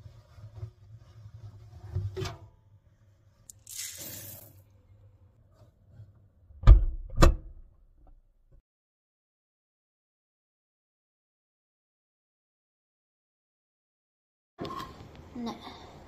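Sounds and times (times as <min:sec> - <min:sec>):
beads rattling into drum: 0:03.5 - 0:04.6.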